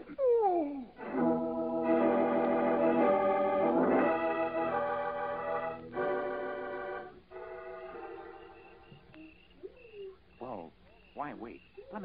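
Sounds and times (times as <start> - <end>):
organ playing held chords: 1.0 - 9.4.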